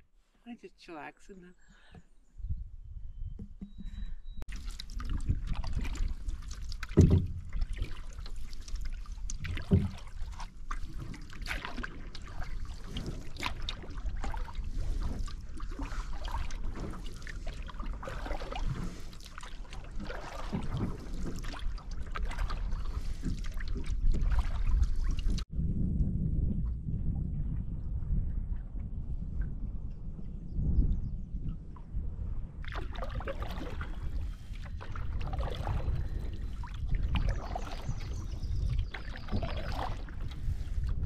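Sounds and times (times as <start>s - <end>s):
paddle strokes in water: 3.6s - 25.5s, 32.6s - 41.0s
water splashing and dripping: 4.5s - 25.5s, 32.6s - 41.0s
low rumble: 25.5s - 32.7s.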